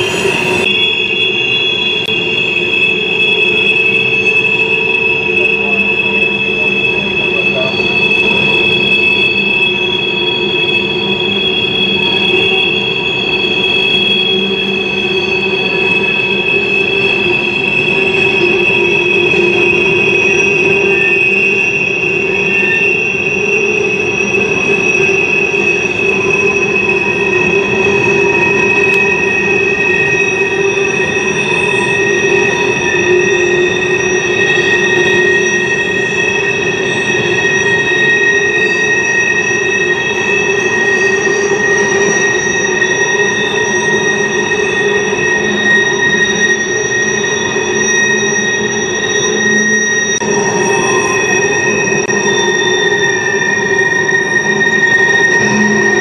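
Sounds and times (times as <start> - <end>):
rumble of passing train cars: 0.0 - 56.0
train wheels squealing: 0.0 - 56.0.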